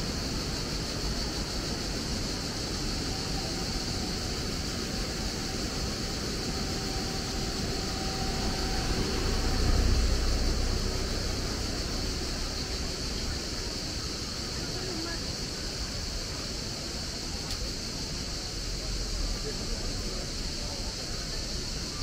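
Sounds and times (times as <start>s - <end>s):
even hiss: 0.0s - 22.0s
high steady tone: 2.9s - 12.0s.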